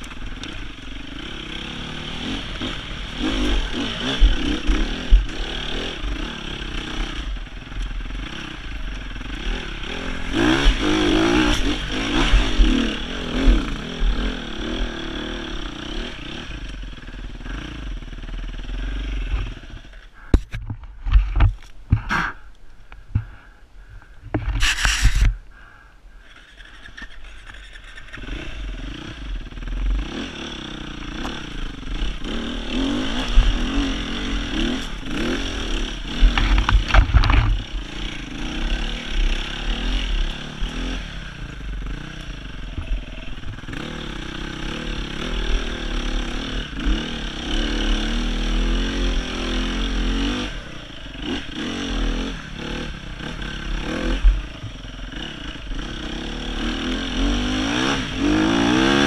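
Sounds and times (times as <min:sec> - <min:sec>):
motorcycle engine revving: 0:00.0 - 0:22.5, 0:26.3 - 0:59.0
knocks and clatter: 0:36.2 - 0:37.6.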